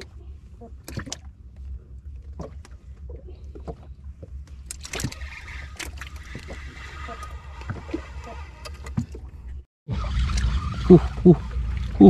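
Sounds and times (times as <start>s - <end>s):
knocks and clicks against boat: 0.0s - 9.6s
steady low rumble: 0.0s - 12.0s.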